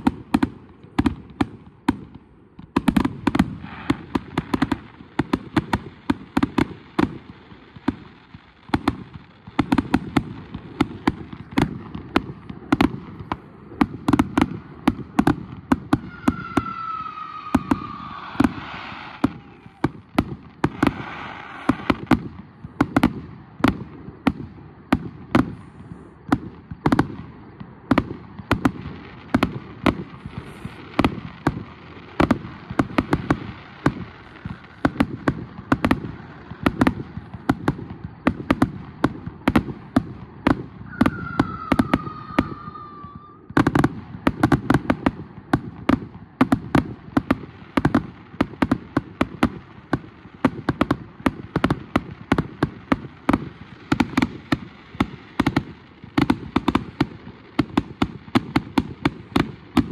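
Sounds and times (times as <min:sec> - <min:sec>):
falling firework whistle: 0:03.0 - 0:04.8, 0:12.7 - 0:23.1, 0:28.5 - 0:45.0
firework shells bursting: 0:08.7 - 0:23.1, 0:28.6 - 0:43.9.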